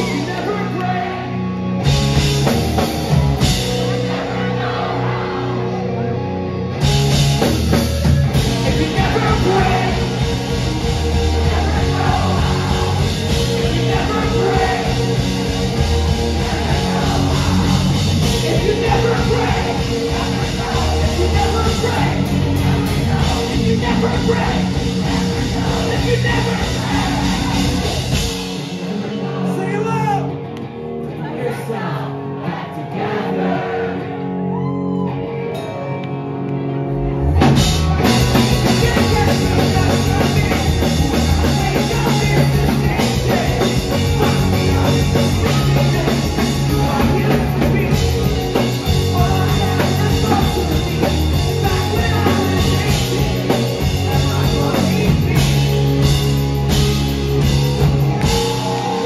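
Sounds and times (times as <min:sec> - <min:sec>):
electric guitar: 0:00.0 - 0:29.5, 0:30.2 - 0:32.4, 0:33.9 - 0:59.0
drums and bass: 0:00.0 - 0:30.2, 0:37.0 - 0:59.0
person singing: 0:37.8 - 0:56.1.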